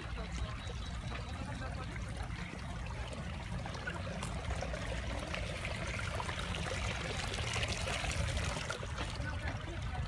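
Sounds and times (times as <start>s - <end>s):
water trickling over rocks: 0.0s - 10.0s.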